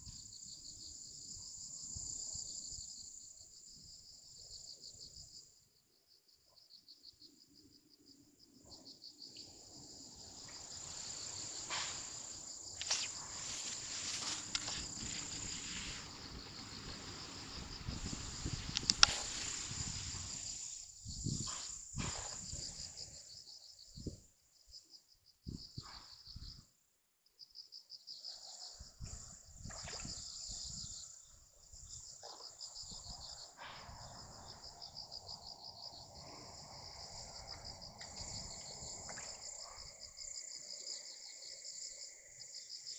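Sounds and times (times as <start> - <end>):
crickets trilling: 0.0 - 26.6, 27.4 - 42.9
sharp click: 18.8 - 19.3.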